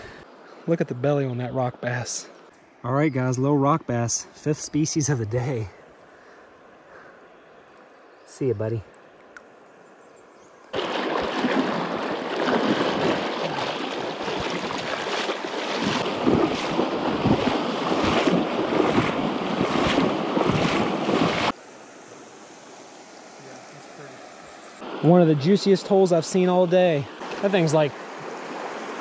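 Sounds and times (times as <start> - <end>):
legs splashing through water: 10.7 - 21.6
rushing river water: 10.7 - 21.6, 22.4 - 29.0.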